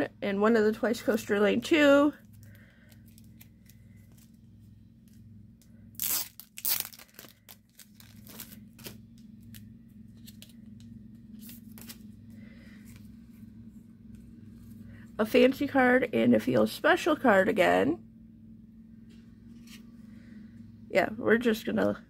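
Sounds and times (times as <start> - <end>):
packaging crinkling: 5.9 - 10.6
packaging ripping: 6.0 - 9.6.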